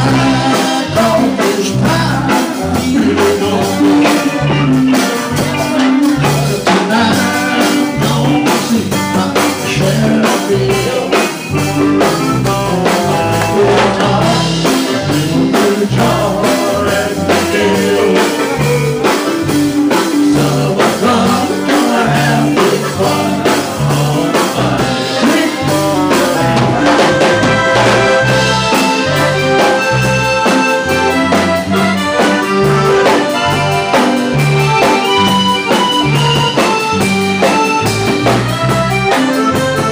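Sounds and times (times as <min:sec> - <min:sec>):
drum kit: 0:00.0 - 0:39.9
pulsing bass line: 0:00.0 - 0:39.9
saxophone: 0:02.8 - 0:08.0, 0:24.4 - 0:39.9.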